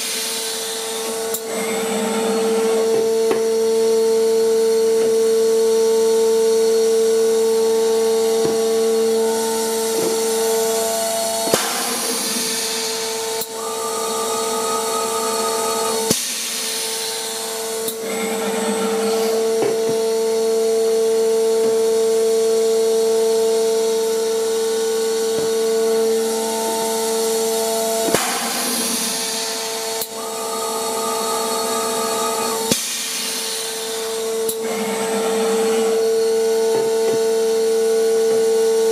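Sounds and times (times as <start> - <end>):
filler motor whine: 0.0 - 38.9
hiss: 9.4 - 18.0, 24.6 - 34.6
higher tone: 25.5 - 34.4.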